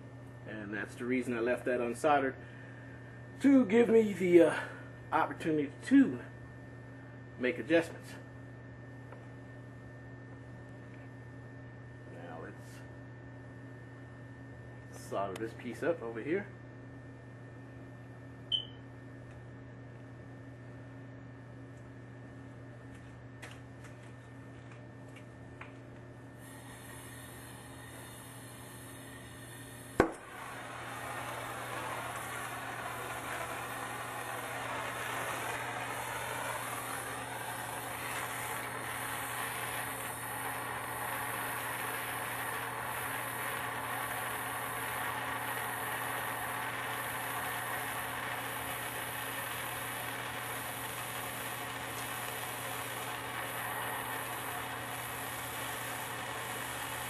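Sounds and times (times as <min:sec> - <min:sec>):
torch flame hissing: 0:26.4 - 0:57.0
gas torch lighting click: 0:29.9 - 0:57.0.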